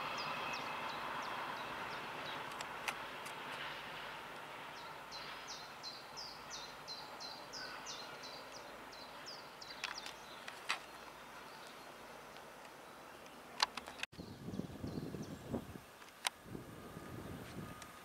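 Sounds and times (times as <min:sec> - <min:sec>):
small bird singing: 0:00.0 - 0:02.5, 0:04.8 - 0:16.0
diesel locomotive moving away: 0:00.0 - 0:13.6, 0:14.8 - 0:18.0.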